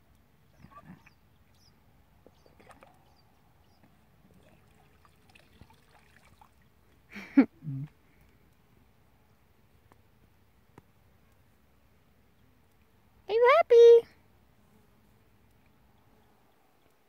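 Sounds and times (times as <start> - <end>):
water splashing and dripping: 4.3 - 6.9.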